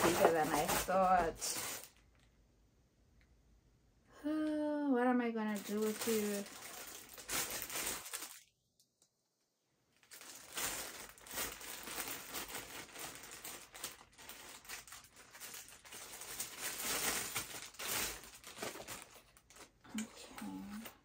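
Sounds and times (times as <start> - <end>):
plastic bag crinkling: 0.0 - 2.3, 5.5 - 8.5, 10.0 - 21.0.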